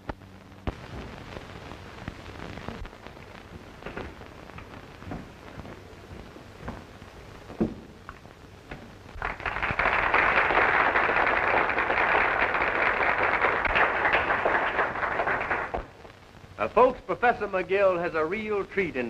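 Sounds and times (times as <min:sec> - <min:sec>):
audience applauding: 0:09.2 - 0:15.9.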